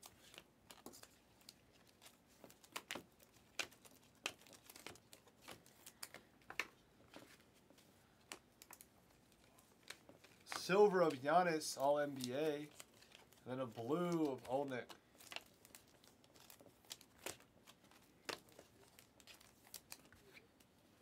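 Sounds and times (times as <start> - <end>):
cards being flicked through: 9.8 - 15.5.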